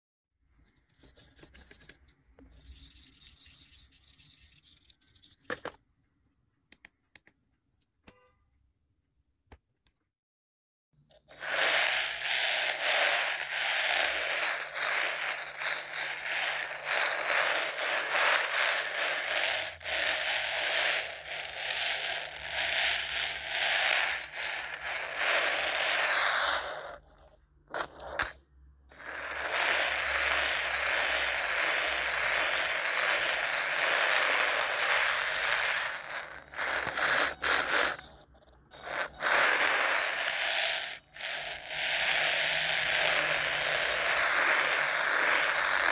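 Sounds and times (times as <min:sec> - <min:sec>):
small electric motor whirring: 0:11.2 - 0:45.9
tyres scraping on floor: 0:11.4 - 0:27.0, 0:29.0 - 0:38.0.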